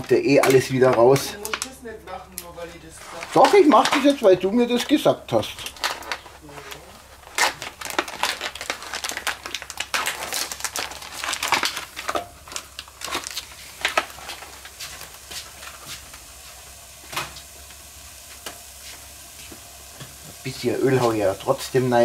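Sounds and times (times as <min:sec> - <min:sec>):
plastic tray crinkling: 0:00.0 - 0:15.8.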